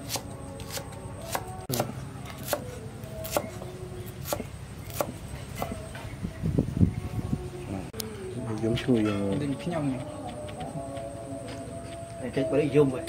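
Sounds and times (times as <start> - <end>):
knife chopping onion on wood: 0.0 - 3.6, 4.2 - 5.8.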